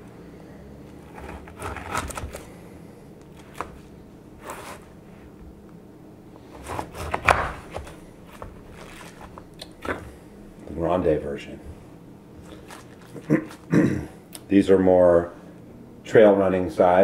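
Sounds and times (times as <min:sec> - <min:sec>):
knife crunching through granola bars: 0:00.9 - 0:02.6, 0:06.5 - 0:10.2, 0:12.4 - 0:13.7.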